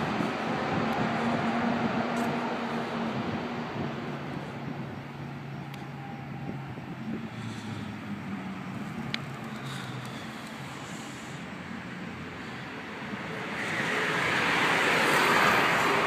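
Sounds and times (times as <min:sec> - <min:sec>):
distant car rumbling in tunnel: 0:00.0 - 0:11.3.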